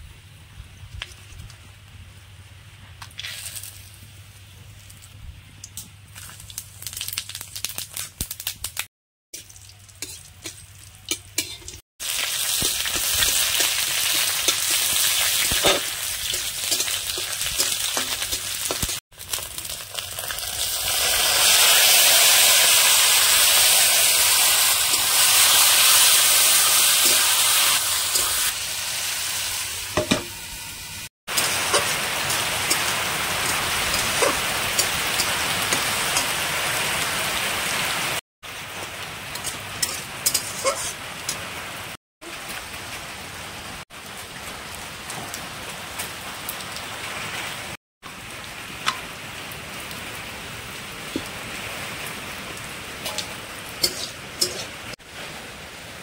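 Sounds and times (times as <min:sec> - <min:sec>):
crackles: 0:00.7 - 0:30.0
food sizzling in hot oil: 0:03.0 - 0:04.4, 0:06.1 - 0:42.8, 0:46.8 - 0:55.5
stirring in a pan: 0:09.4 - 0:19.0, 0:39.3 - 0:41.4, 0:53.0 - 0:55.0.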